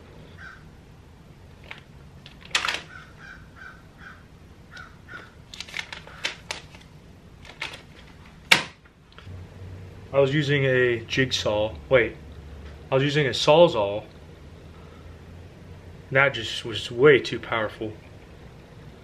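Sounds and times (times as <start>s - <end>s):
paper leaflet rustling: 5.5s - 8.4s.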